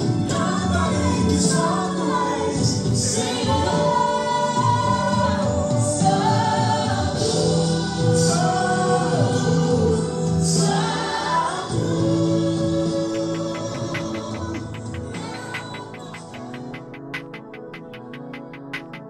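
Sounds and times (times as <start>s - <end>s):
gospel singing with choir: 0.0s - 19.0s
instrumental accompaniment: 13.2s - 19.0s.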